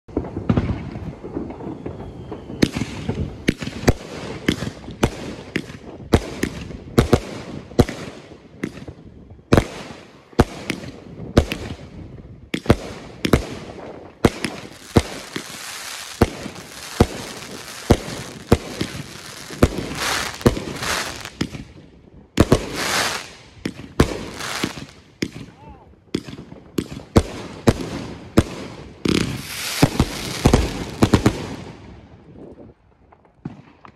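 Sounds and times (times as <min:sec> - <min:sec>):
fireworks bangs: 0:00.1 - 0:32.5
fireworks crackling hiss: 0:11.5 - 0:21.8, 0:22.4 - 0:25.5, 0:26.8 - 0:31.9.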